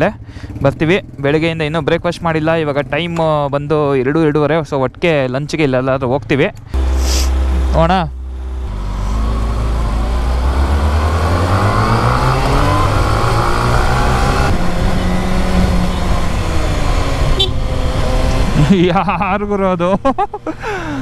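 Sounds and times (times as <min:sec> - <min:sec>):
motorcycle engine accelerating: 0:06.7 - 0:19.2.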